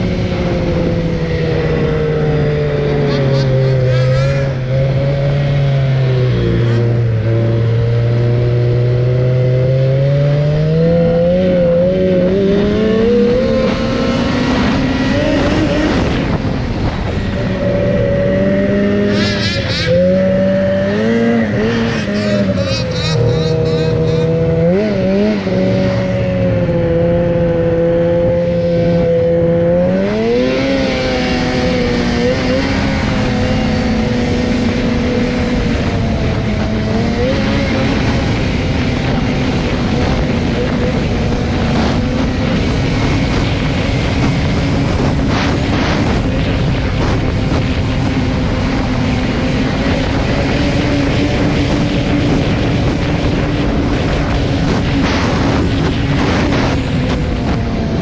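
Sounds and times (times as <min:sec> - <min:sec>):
snowmobile engine revving: 0:00.0 - 0:58.0.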